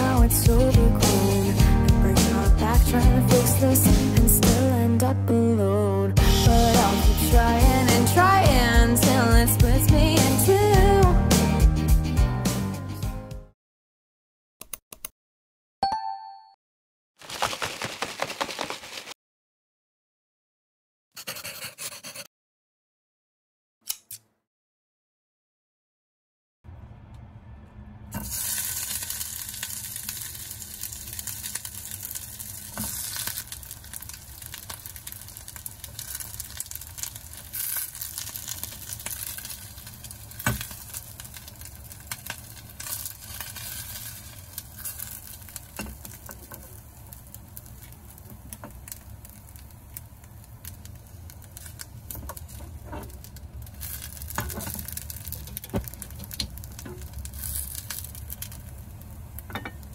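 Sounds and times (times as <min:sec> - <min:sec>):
rice balls sizzling in pan: 0:28.2 - 0:59.9.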